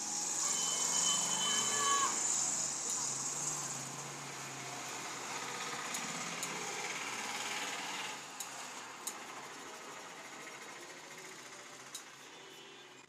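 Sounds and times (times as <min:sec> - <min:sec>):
scissors clicks: 0:05.9 - 0:06.6, 0:08.4 - 0:09.2.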